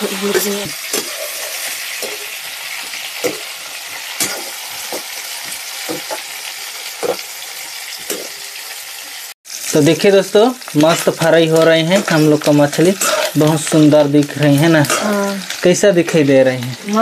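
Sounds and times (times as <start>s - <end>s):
seafood sizzling in hot oil: 0.0s - 17.0s
metal spatula scraping pan: 0.1s - 5.2s, 11.6s - 13.4s.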